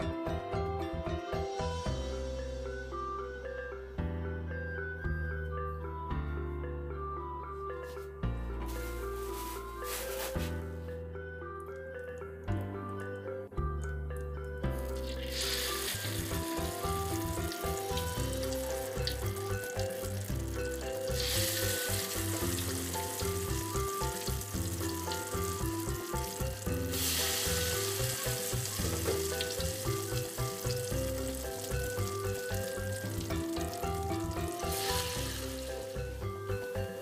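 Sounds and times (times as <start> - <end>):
spring rolls sizzling in oil: 14.9 - 36.2
music with steady beat: 15.9 - 37.0.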